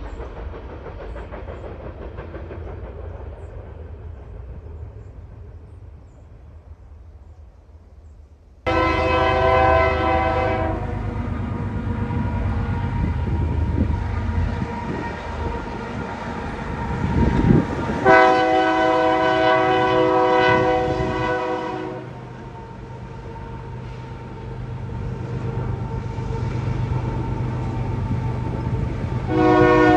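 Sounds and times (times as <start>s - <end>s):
rumble of locomotive and freight cars: 0.0s - 29.9s
locomotive air horn blasts: 8.7s - 11.2s, 18.0s - 22.3s, 29.3s - 29.9s.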